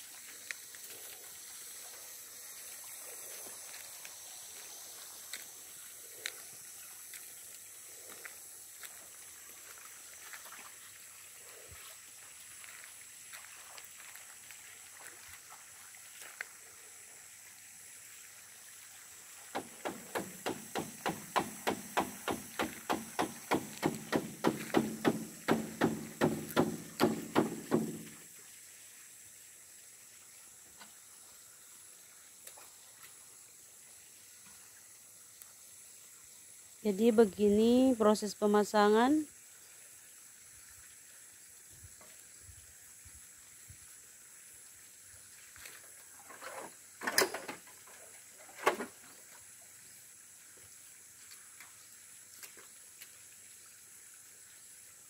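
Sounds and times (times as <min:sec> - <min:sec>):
rapid even knocking: 0:19.6 - 0:28.1.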